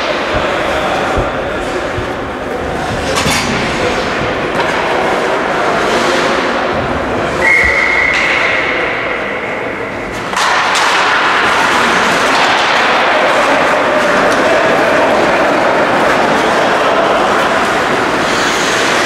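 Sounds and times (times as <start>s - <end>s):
sticks and puck knocking: 0.0s - 6.6s, 10.2s - 19.0s
skating rush: 0.0s - 19.0s
referee whistle blast: 7.4s - 8.8s.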